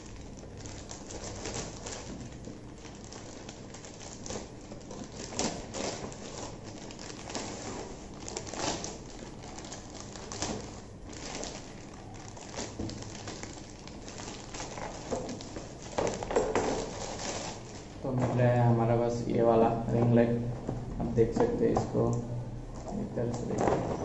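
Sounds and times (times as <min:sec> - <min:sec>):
plastic mailer bag rustling: 0:00.0 - 0:18.8.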